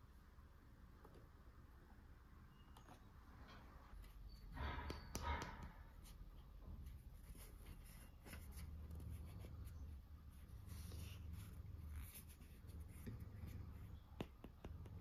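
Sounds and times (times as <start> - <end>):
scratchy rustling: 6.0 - 14.0.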